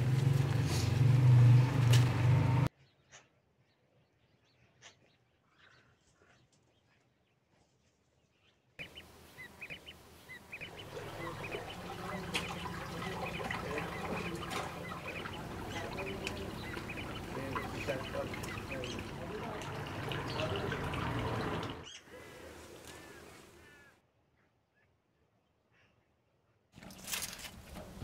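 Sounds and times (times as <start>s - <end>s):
birds calling: 8.4s - 24.9s
ducklings peeping: 8.8s - 22.0s
water rushing in stone channel: 10.0s - 23.6s.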